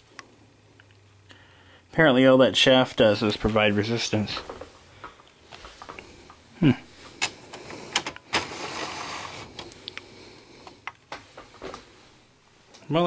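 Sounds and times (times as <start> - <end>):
plastic tray sliding rasp: 8.0 - 9.6.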